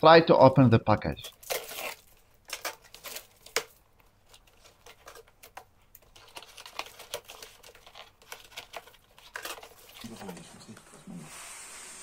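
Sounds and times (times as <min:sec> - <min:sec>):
plastic wrap and tape crinkling: 0:01.2 - 0:10.5.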